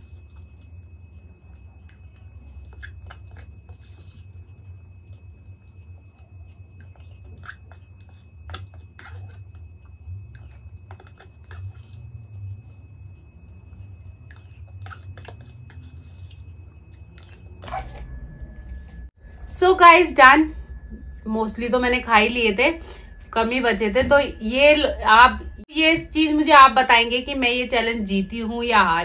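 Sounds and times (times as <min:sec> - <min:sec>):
spoon scraping in plastic cup: 0:00.0 - 0:18.2
chewing and wet mouth sounds: 0:00.0 - 0:18.8
faint high whine: 0:00.0 - 0:29.0.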